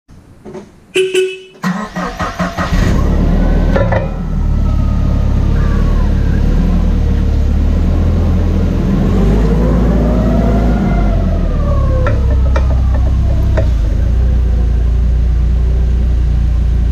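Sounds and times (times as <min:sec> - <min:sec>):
motorcycle engine rumbling: 0:00.2 - 0:16.9.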